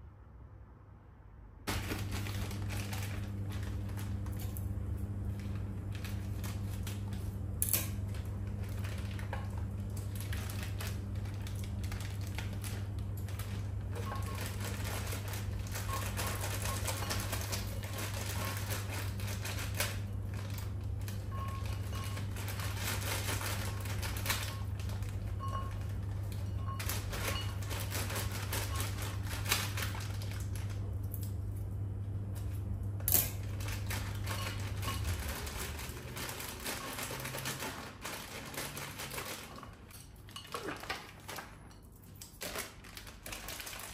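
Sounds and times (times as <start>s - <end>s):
plastic bag crinkling: 1.7s - 31.0s, 33.3s - 43.9s.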